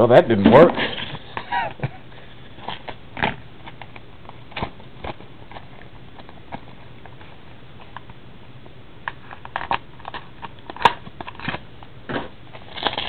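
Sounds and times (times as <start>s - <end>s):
plastic wrapper crinkling and tearing: 9.1s - 11.6s, 12.5s - 13.0s.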